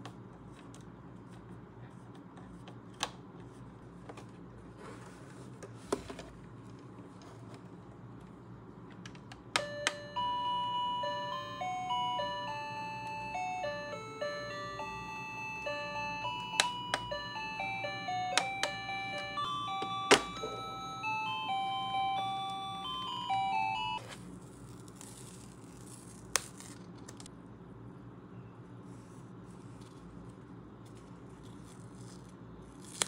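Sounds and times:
electronic beeping melody: 9.6s - 24.0s.

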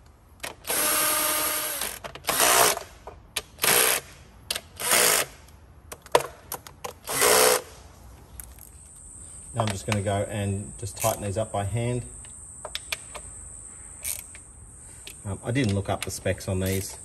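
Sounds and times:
power screwdriver whirring: 7.0s - 7.6s.

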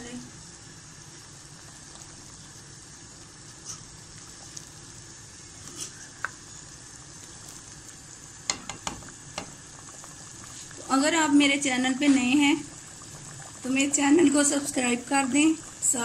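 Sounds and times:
gravy sizzling in a wok: 0.0s - 16.0s
spoon clicking against pan: 8.5s - 9.5s.

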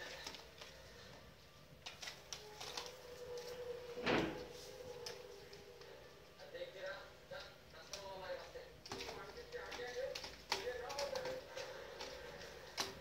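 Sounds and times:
thud against door: 4.0s - 4.4s.

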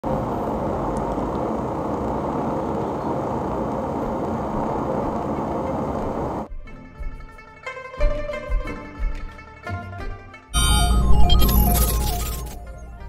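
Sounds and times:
steady rumbling noise: 0.0s - 6.5s
plucked-string music: 6.5s - 13.0s.

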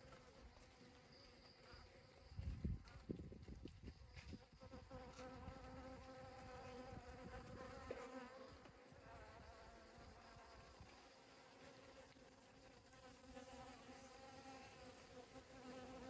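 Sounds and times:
honeybees buzzing: 4.2s - 16.0s.

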